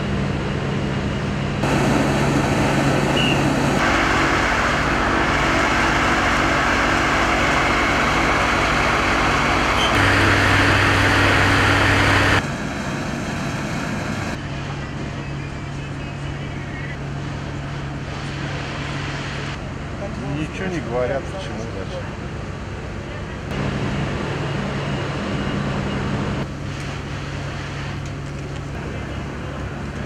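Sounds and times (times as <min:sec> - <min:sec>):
engine driving water pump: 0:00.5 - 0:15.1.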